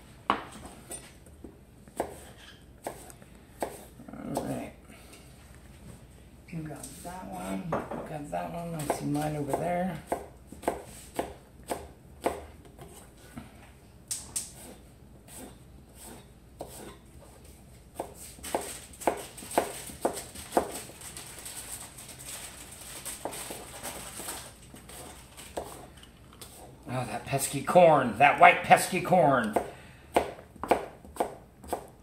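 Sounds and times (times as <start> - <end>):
knife chopping on cutting board: 0.3 - 4.6, 8.8 - 13.1, 14.4 - 17.4, 18.0 - 20.9, 24.9 - 26.7, 29.4 - 32.0.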